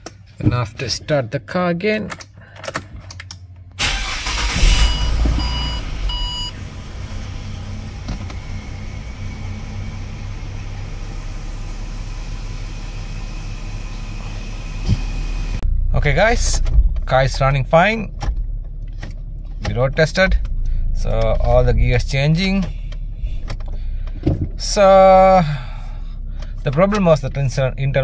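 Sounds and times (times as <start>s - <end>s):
car engine starting and idling: 3.2s - 28.0s
short warning beeps: 4.6s - 6.6s.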